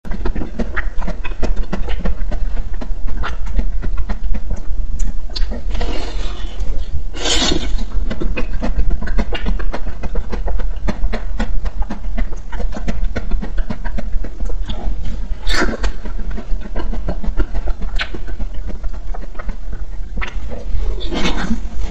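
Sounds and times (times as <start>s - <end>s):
crackles and wet mouth clicks: 0.1s - 21.9s
crunchy bite: 15.4s - 16.1s.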